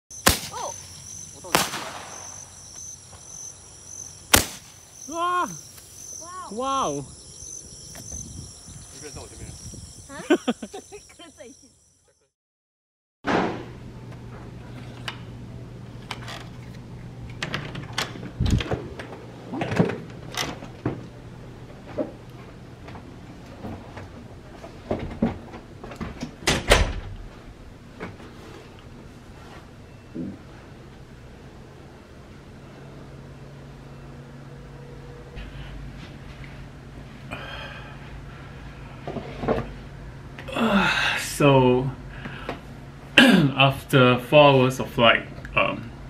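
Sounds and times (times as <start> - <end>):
steady low hum: 0.1 - 11.9, 27.3 - 46.0
insects chirping: 0.1 - 12.3
firework tube bangs: 0.2 - 0.8, 1.4 - 2.4, 4.3 - 4.8
person exclaiming: 5.1 - 5.6, 6.2 - 7.0.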